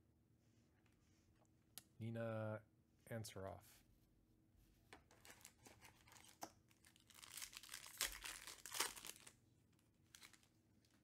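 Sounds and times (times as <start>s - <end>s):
foil wrapper crinkling torn open: 5.2s - 11.0s.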